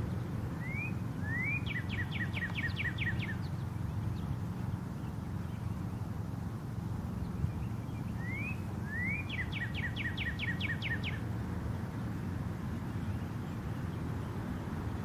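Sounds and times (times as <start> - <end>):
songbird singing: 0.0 - 15.0.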